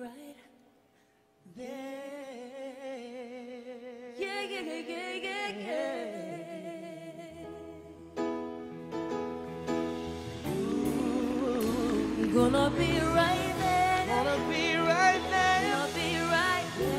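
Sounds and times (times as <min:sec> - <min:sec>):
man and woman singing soul ballad: 0:10.2 - 0:16.9.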